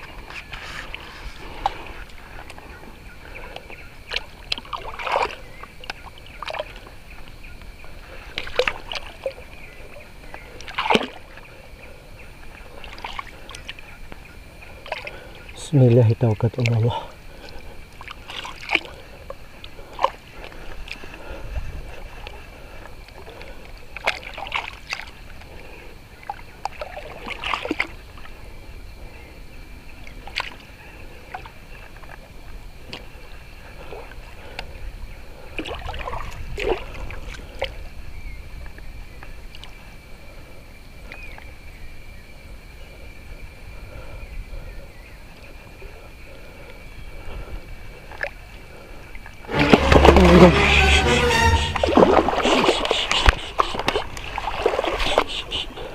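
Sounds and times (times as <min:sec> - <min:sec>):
water sloshing and splashing: 0:00.0 - 0:07.4, 0:08.0 - 0:11.5, 0:12.5 - 0:14.0, 0:14.6 - 0:15.4, 0:16.6 - 0:25.6, 0:26.2 - 0:28.4, 0:35.4 - 0:37.8, 0:51.4 - 0:55.9
low rumble: 0:49.5 - 0:52.3.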